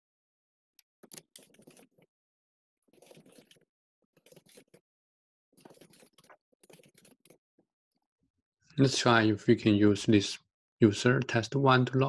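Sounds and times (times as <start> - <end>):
faint keyboard typing: 1.0 - 2.0, 5.6 - 7.4.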